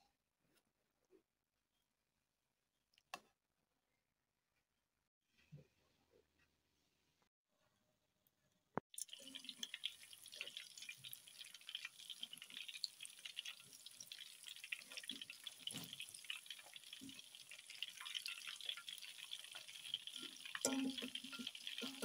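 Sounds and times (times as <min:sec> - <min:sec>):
chicken deep-frying in oil: 0:08.9 - 0:22.0
oil popping: 0:09.0 - 0:22.0.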